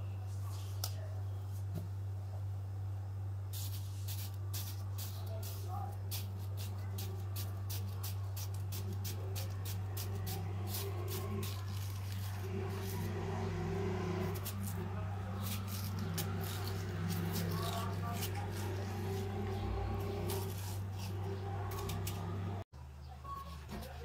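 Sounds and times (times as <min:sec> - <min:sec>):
low hum: 0:08.8 - 0:22.7
knife cutting watermelon: 0:14.4 - 0:22.3.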